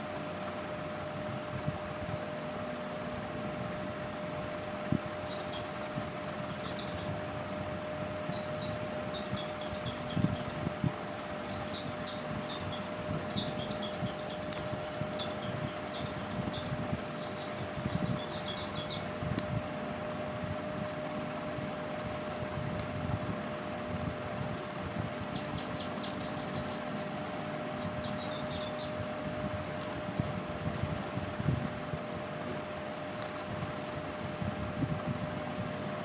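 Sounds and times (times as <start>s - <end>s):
steady hum: 0.0s - 36.0s
small bird chirping: 4.9s - 20.0s, 24.5s - 34.1s.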